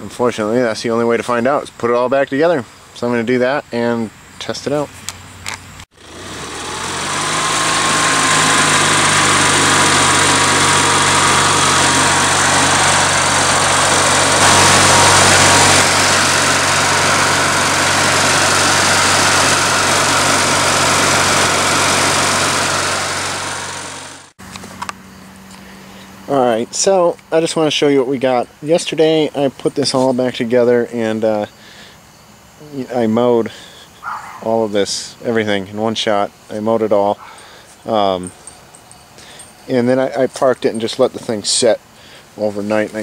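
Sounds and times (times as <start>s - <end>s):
thin whine: 4.7s - 31.5s
engine running: 5.2s - 30.2s, 37.2s - 43.0s.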